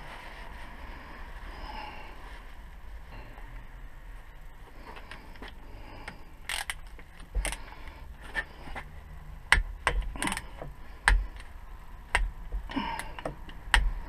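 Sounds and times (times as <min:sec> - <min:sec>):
socket ratchet clicking: 0:06.5 - 0:07.6, 0:09.5 - 0:11.5.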